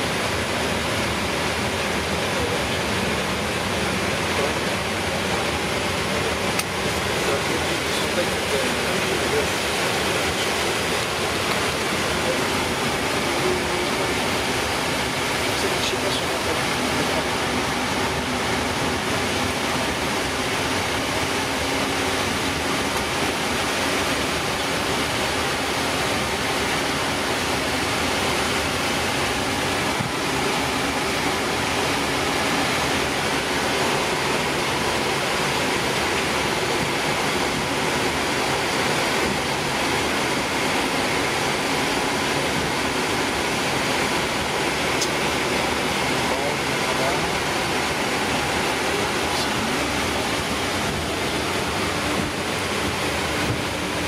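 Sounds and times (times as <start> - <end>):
airplane cockpit rushing noise: 0.0 - 54.0.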